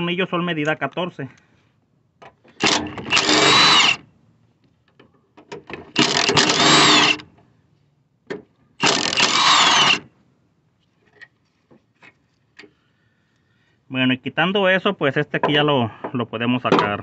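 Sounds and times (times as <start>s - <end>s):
power ratchet spinning bolts: 2.6s - 4.0s, 5.9s - 7.2s, 8.8s - 10.0s.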